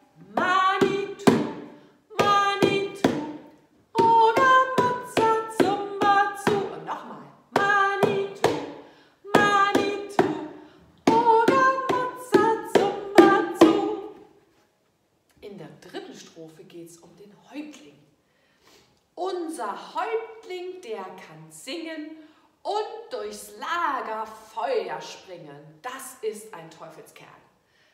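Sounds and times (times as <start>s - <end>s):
hands drumming on plastic bowl: 0.3s - 6.7s, 7.5s - 10.4s, 11.1s - 14.0s.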